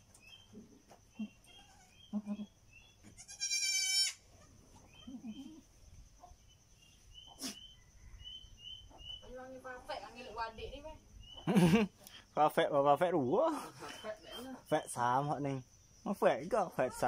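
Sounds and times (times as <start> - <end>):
small bird chirps: 0.1 - 12.4
goat kid bleating: 1.2 - 5.6.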